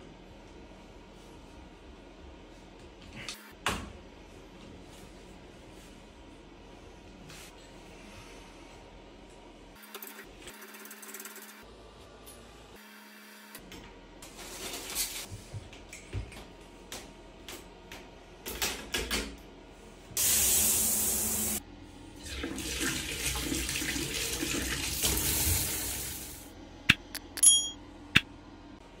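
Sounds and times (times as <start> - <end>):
water running from tap: 20.2 - 21.6, 22.2 - 26.4.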